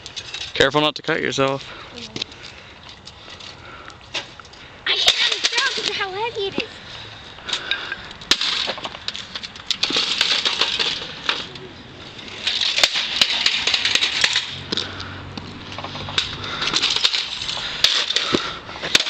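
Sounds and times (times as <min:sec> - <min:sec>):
clattering and scraping on asphalt: 0:00.0 - 0:19.0
plastic and metal cracking: 0:04.9 - 0:06.6, 0:07.5 - 0:15.1, 0:15.7 - 0:19.0.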